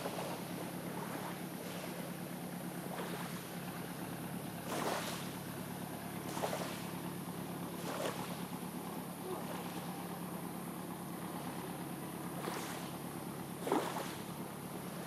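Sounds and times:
waves lapping on pebbles: 0:00.0 - 0:02.1, 0:02.8 - 0:03.6, 0:04.6 - 0:05.4, 0:06.2 - 0:07.0, 0:07.8 - 0:08.5, 0:12.4 - 0:13.0, 0:13.6 - 0:15.0
steady low hum: 0:00.0 - 0:15.0.

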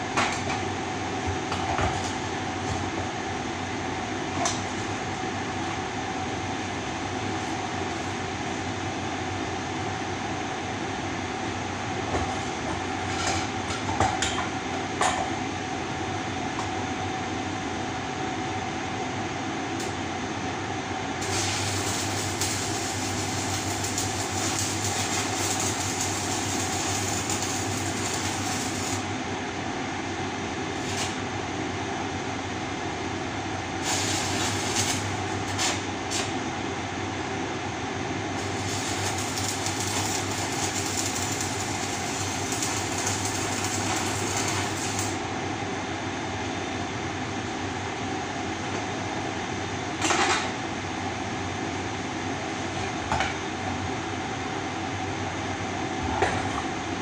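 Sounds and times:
workshop hum: 0:00.0 - 0:57.0
welding arc crackling and buzzing: 0:21.2 - 0:29.2, 0:30.7 - 0:31.2, 0:33.7 - 0:36.4, 0:38.4 - 0:45.3.

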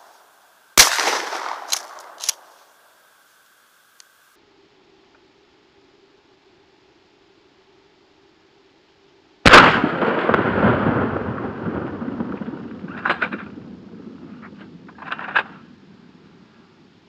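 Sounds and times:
faint sharp cracks: 0:00.0 - 0:04.2
shotgun blast with echo: 0:00.8 - 0:02.4, 0:09.5 - 0:11.2.

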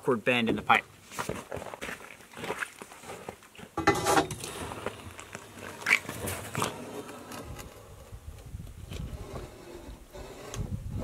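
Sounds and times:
metal pipe rattling scrape: 0:03.8 - 0:04.8.

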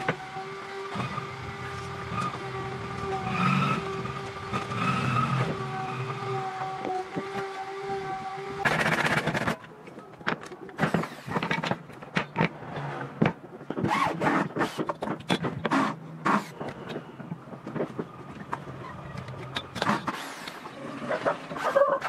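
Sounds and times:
boards scraping on workbench: 0:12.5 - 0:16.9.

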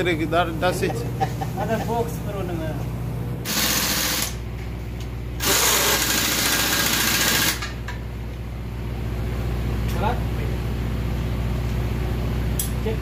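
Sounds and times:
steady machinery hum: 0:00.0 - 0:13.0
pneumatic impact wrench rattling: 0:03.4 - 0:04.4, 0:05.4 - 0:07.8.

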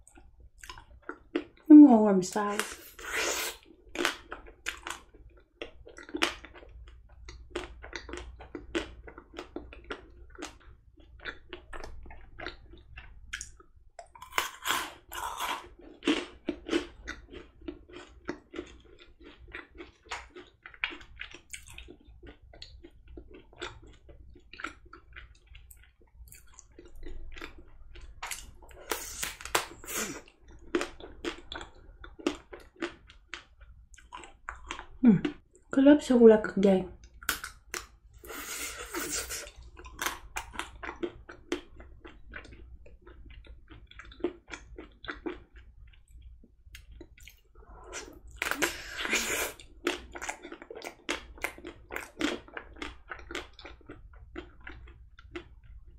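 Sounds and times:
wet mouth sounds: 0:37.1 - 0:40.7, 0:44.8 - 0:55.8.

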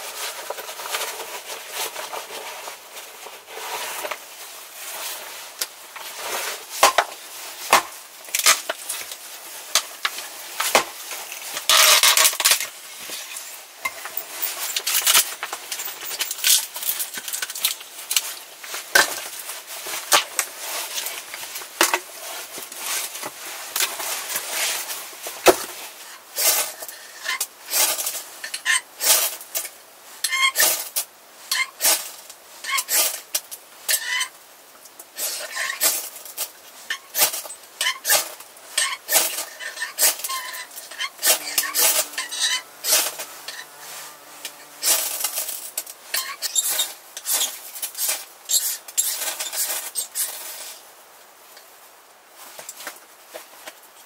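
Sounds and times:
wood scraping: 0:39.0 - 0:48.2.

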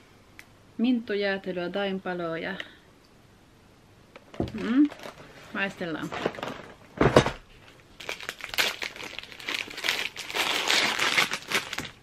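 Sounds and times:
wrapper crinkling being torn: 0:04.5 - 0:05.4, 0:07.6 - 0:12.0.

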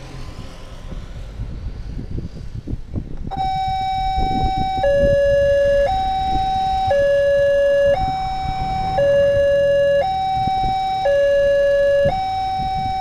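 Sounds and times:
road traffic rumble: 0:00.0 - 0:13.0
two-tone crossing alarm: 0:03.3 - 0:13.0.

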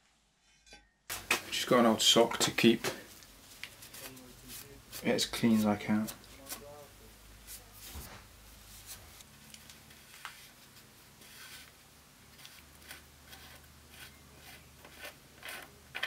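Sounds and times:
faint metal scuffing and rubbing: 0:07.4 - 0:15.7.

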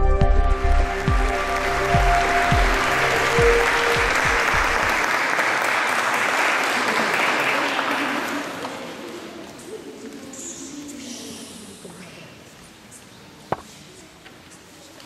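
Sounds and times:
background music sustained tones: 0:00.0 - 0:05.0
audience applauding: 0:00.0 - 0:09.4.

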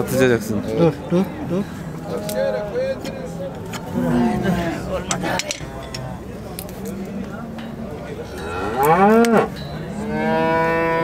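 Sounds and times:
cattle mooing: 0:03.9 - 0:04.8, 0:08.4 - 0:11.0.

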